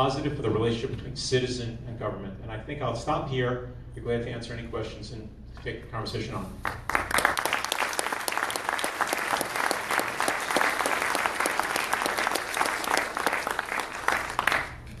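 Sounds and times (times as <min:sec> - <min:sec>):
audience applauding: 0:06.6 - 0:15.0.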